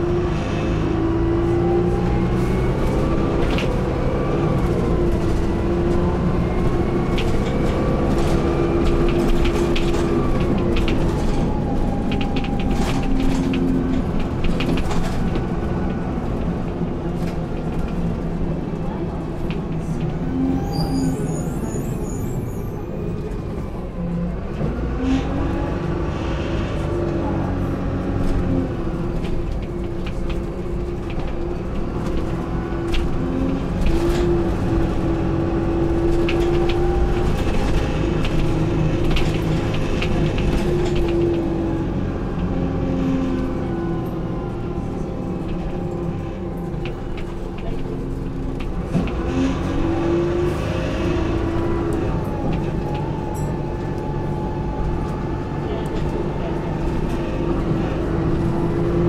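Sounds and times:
bus engine drone: 0.0s - 59.0s
bodywork rattles and clicks: 6.7s - 20.3s, 29.1s - 41.8s.

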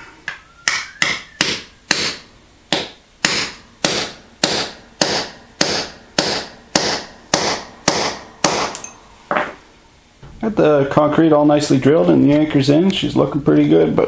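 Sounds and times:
hammer striking steel rod: 0.3s - 9.0s.

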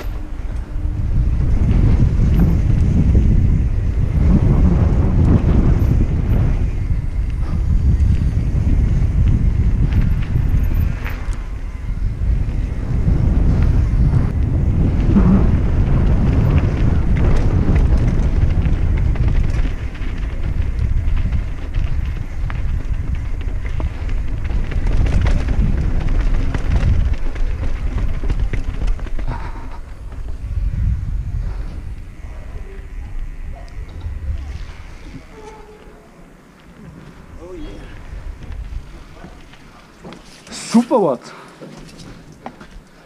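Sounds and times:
bike knocks and rattles: 0.0s - 30.6s
wind buffeting microphone: 0.0s - 41.1s.

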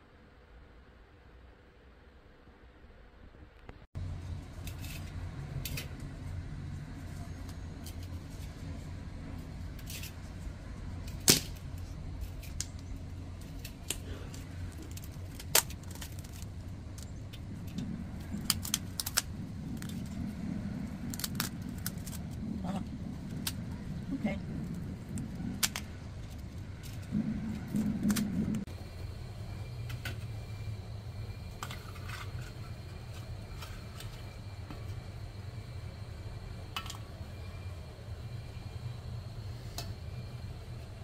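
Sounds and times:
steady low hum: 0.0s - 41.0s
brittle shell cracking: 11.1s - 22.4s, 24.6s - 28.4s.

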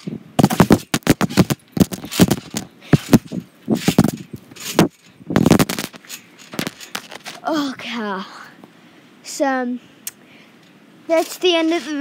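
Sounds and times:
trampoline thumps and spring rattles: 0.0s - 7.5s, 11.1s - 12.0s.

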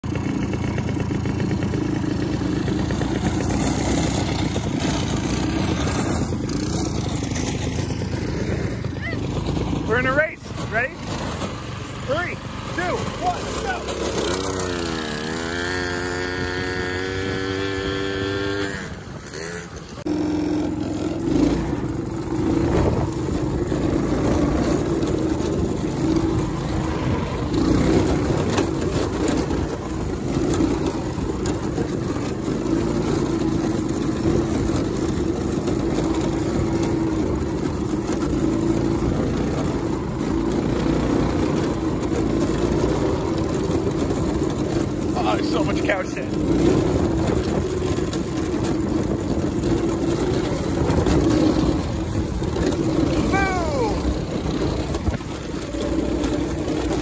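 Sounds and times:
go-kart engine revving: 0.0s - 57.0s
knocks from kart bouncing: 0.0s - 57.0s
wind noise: 21.3s - 57.0s.

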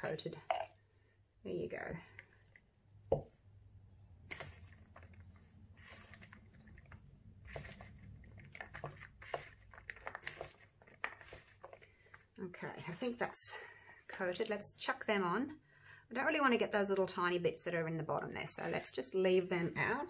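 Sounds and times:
sticky popcorn rustling and clicking: 4.2s - 12.3s.

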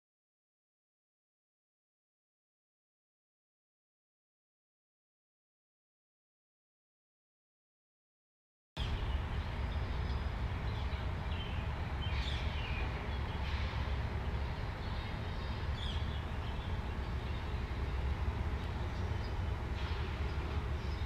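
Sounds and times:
low outdoor rumble: 8.8s - 21.0s.

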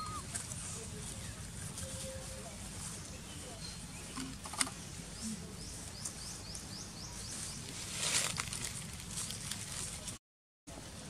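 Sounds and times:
rustling: 7.3s - 10.2s.

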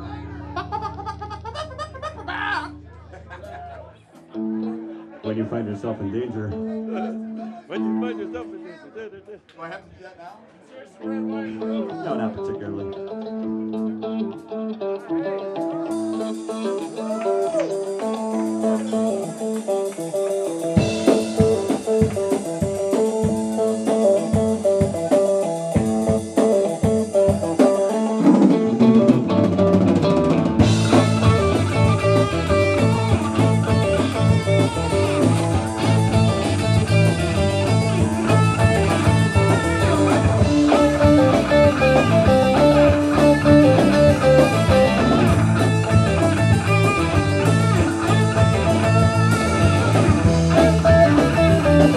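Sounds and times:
bass guitar: 0.0s - 8.8s, 11.0s - 51.9s
electric guitar: 0.0s - 9.6s, 11.0s - 51.9s
drum kit with cymbals: 15.9s - 51.9s.

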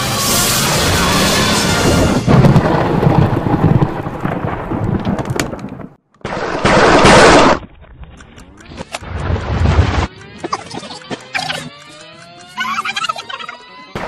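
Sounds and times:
thunder-like rumbling and crackling: 0.6s - 8.1s.

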